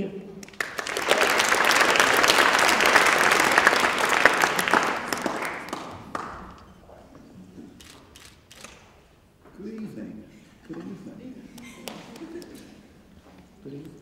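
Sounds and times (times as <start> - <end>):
audience applauding: 0.4 - 6.7.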